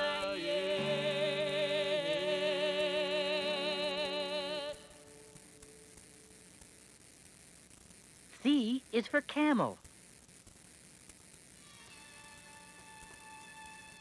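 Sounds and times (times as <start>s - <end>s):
sustained accompanying chords: 0.0s - 5.2s
faint hiss: 0.0s - 14.0s.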